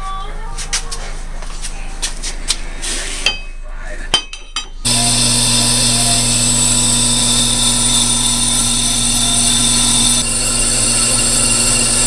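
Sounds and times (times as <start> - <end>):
brake lathe humming: 4.6 - 12.0.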